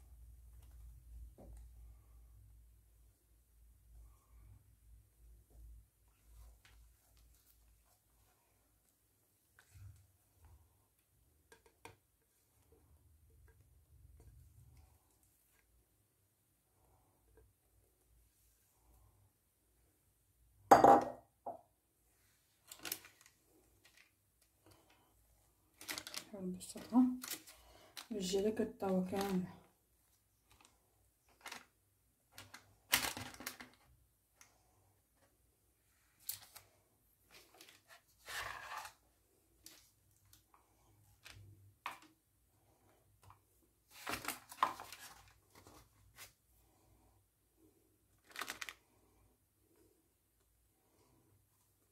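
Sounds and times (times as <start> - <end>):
paper rustling: 22.6 - 24.1, 25.8 - 28.1, 31.3 - 31.7, 43.2 - 46.4, 48.2 - 48.8
batter scraping in a baking tray: 38.2 - 39.0.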